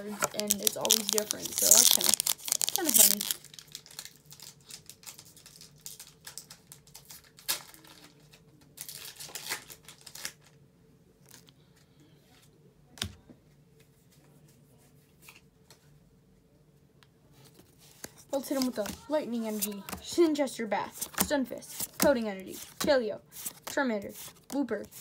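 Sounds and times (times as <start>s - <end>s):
trading cards handled: 0.0s - 5.2s, 17.4s - 20.3s, 20.9s - 25.0s
foil wrapper crinkling and tearing: 0.2s - 10.6s.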